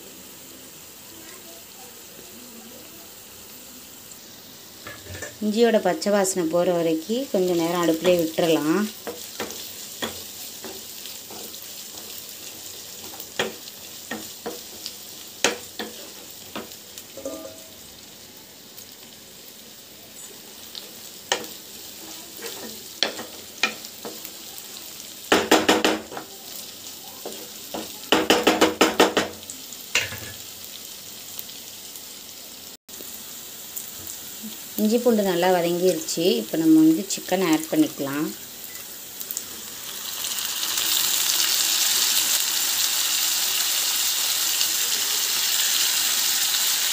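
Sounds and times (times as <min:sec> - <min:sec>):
shallots sizzling in oil: 0:00.0 - 0:46.9
wooden spatula stirring and scraping: 0:07.4 - 0:16.8, 0:21.3 - 0:24.3.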